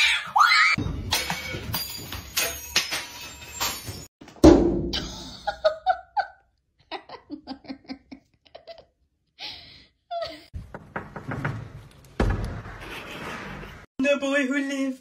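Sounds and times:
loud thump: 0:04.4 - 0:05.0
person laughing: 0:05.0 - 0:09.0.

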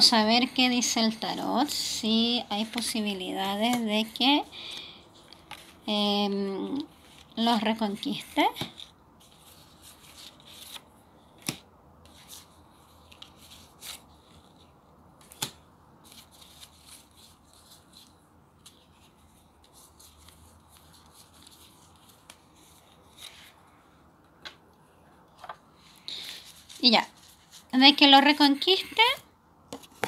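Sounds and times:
cards rustling and sliding: 0:04.6 - 0:05.9, 0:08.5 - 0:24.6, 0:25.3 - 0:27.7, 0:29.7 - 0:30.0.

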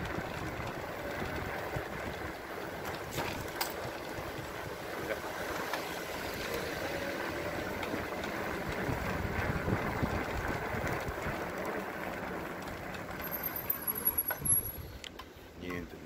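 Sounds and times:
road rumble: 0:00.0 - 0:16.0
wind noise: 0:06.2 - 0:11.6.

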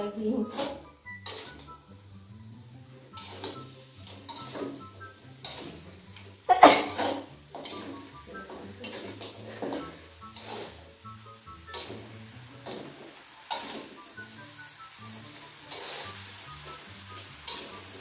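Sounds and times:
background music with bass: 0:00.0 - 0:13.0
metal spatula scraping a wok: 0:00.3 - 0:02.0, 0:02.8 - 0:18.0.

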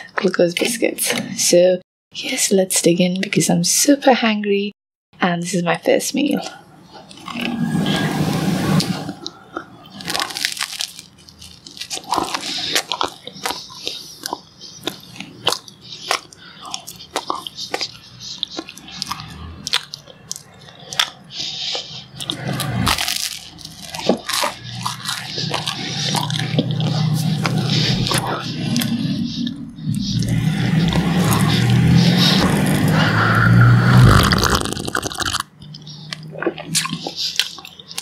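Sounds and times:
chewing crunchy toast: 0:06.4 - 0:07.5, 0:09.1 - 0:32.9, 0:34.0 - 0:38.0.

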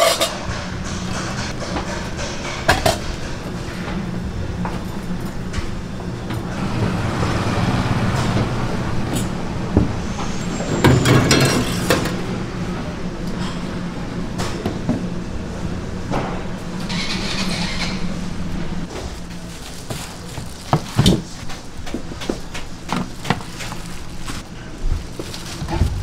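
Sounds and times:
dishes and utensils clattering: 0:00.0 - 0:03.5, 0:10.4 - 0:12.2
low motor hum: 0:22.6 - 0:26.0.

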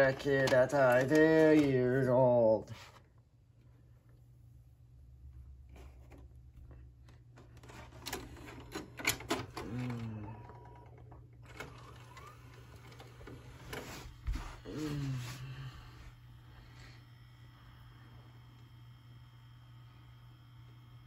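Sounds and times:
tape loading mechanism whir: 0:00.0 - 0:02.5, 0:05.7 - 0:15.4
plastic clicks and clunks: 0:00.1 - 0:01.8.

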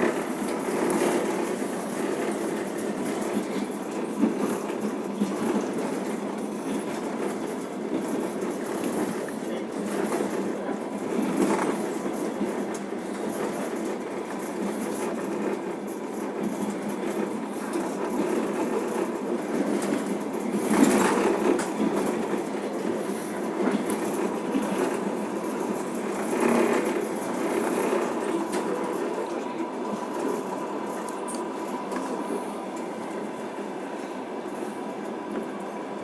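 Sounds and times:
train wheels rumbling on rails: 0:00.0 - 0:36.0.

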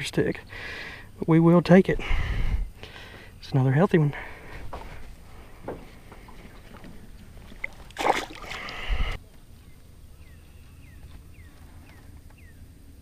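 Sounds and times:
water sloshing: 0:04.6 - 0:09.2
fish splashing into water: 0:07.4 - 0:09.2.

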